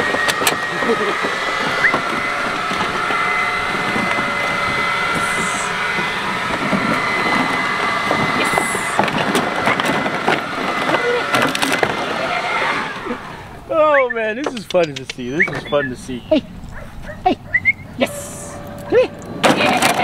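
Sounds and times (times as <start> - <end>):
leaf blower running: 0.0 - 13.9.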